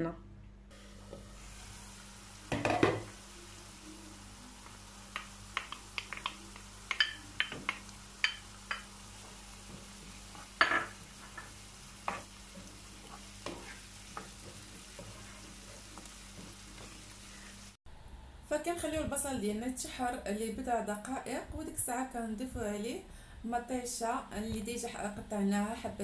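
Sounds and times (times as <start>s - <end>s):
faint sizzle of vegetables frying: 0.7s - 17.8s
wooden spoon tapping and scraping pan: 5.1s - 17.0s.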